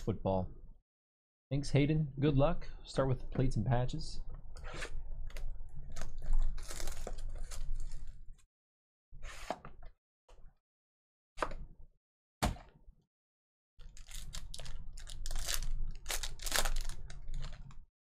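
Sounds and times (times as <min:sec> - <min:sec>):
packaging crinkling and tearing: 0:05.2 - 0:08.2, 0:13.8 - 0:17.8
card pack rustling: 0:05.9 - 0:08.2, 0:13.8 - 0:17.8.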